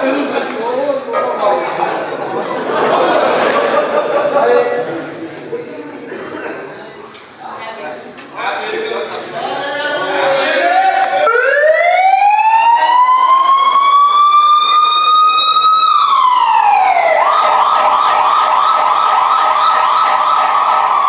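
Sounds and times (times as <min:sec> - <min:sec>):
siren wailing and yelping: 0:10.6 - 0:21.0.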